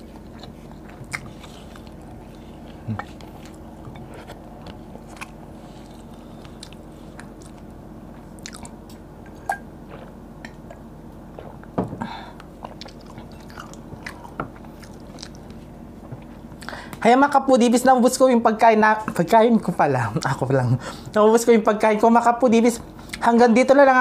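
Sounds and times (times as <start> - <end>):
soft chewing: 0.0 - 17.0.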